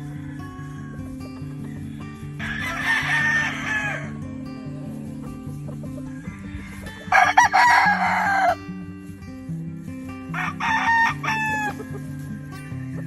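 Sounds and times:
rooster crowing: 0:00.0 - 0:04.3, 0:05.9 - 0:08.7, 0:10.3 - 0:13.0
background music: 0:00.0 - 0:13.0.

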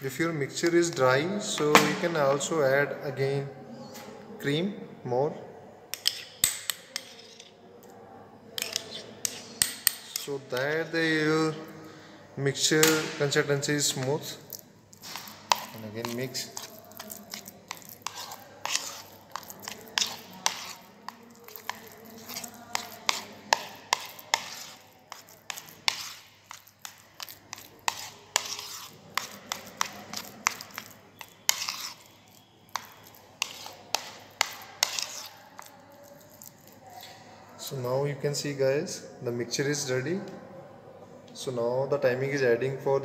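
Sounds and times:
spoon scraping and knocking bowl: 0:05.9 - 0:07.9, 0:08.5 - 0:11.7, 0:12.7 - 0:37.2.

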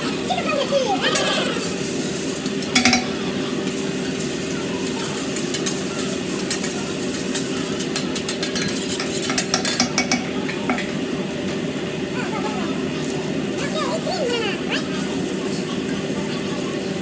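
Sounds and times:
noodles sizzling on griddle: 0:00.0 - 0:17.0
metal spatula scraping griddle: 0:01.1 - 0:10.3.

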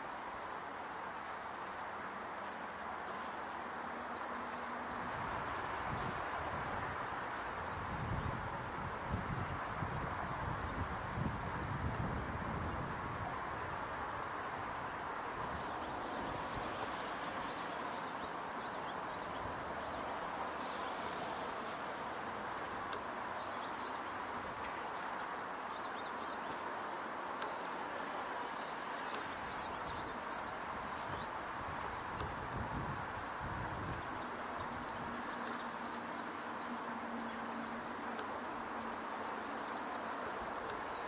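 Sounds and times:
small birds chirping: 0:01.1 - 0:41.0.

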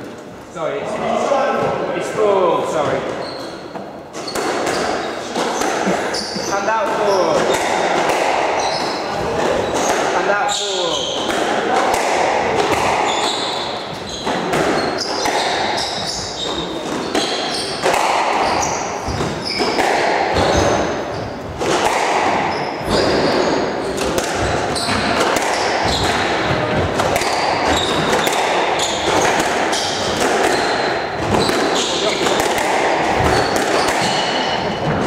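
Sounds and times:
murmur of voices: 0:00.0 - 0:03.2
squash balls smacking walls: 0:04.1 - 0:35.0.

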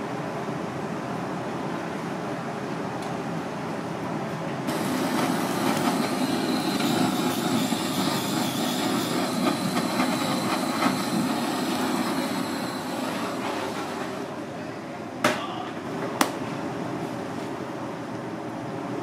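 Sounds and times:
blowtorch flame roaring hiss: 0:04.7 - 0:14.4.

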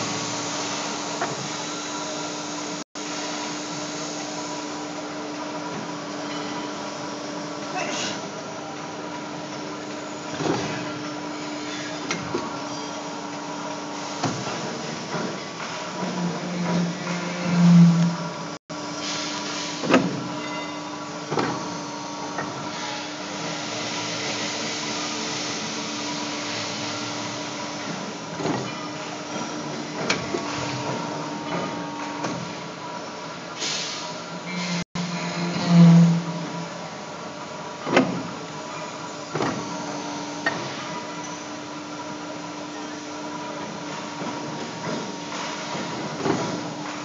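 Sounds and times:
pipe bending machine humming: 0:00.0 - 0:47.0
hydraulic pump humming: 0:12.0 - 0:20.3, 0:34.3 - 0:38.2.

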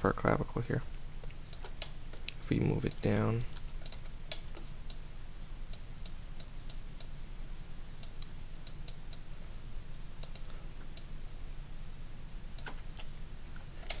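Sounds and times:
steady low hum: 0:00.0 - 0:14.0
mouse and keyboard clicks: 0:01.5 - 0:05.0.

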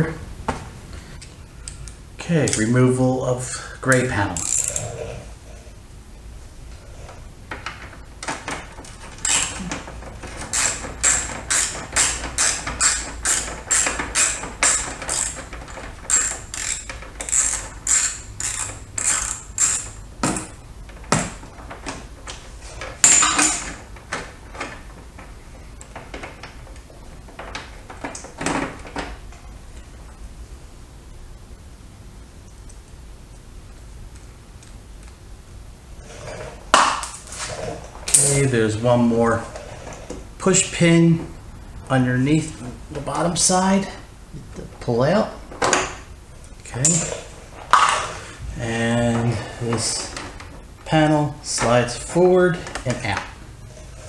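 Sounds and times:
ratchet driver clicking: 0:04.4 - 0:04.8, 0:16.1 - 0:20.0.

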